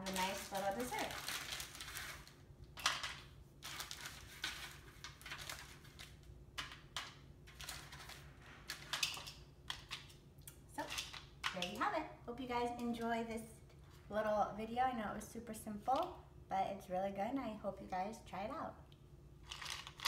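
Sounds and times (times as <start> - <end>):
paper rustling and crinkling: 0.0 - 6.3, 7.4 - 10.0.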